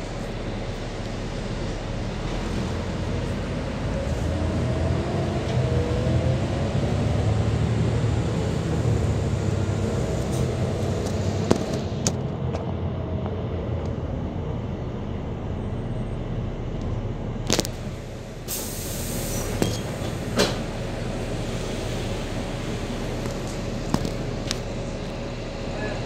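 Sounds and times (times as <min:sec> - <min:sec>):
bus diesel engine running: 0:00.0 - 0:26.0
knocks and rattles from bus body: 0:10.3 - 0:12.8, 0:19.5 - 0:20.8, 0:23.2 - 0:24.7.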